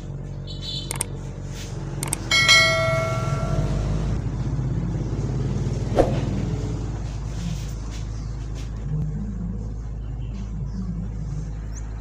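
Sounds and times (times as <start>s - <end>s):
low hum: 2.0s - 12.0s
bright bell ding: 2.2s - 4.2s
short high chime: 2.3s - 4.2s.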